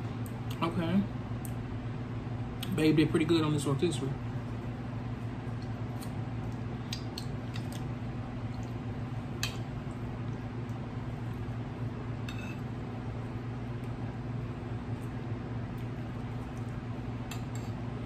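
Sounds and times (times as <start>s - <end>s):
steady low hum: 0.0s - 18.0s
wet mouth eating noises: 5.6s - 8.8s
fork scraping on a plate: 12.3s - 12.7s.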